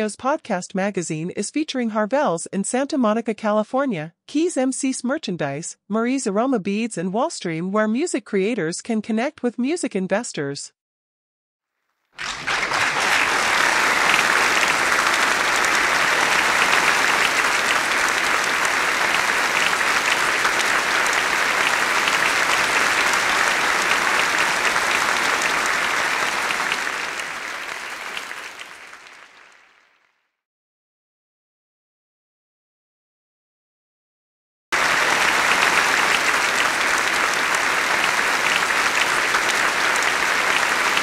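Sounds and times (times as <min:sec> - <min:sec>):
crowd applause: 0:12.2 - 0:30.0, 0:34.8 - 0:41.0.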